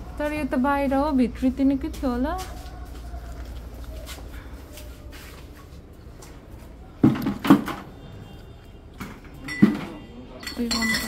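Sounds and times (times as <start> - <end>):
knocks against wooden shelving: 7.0 - 7.9.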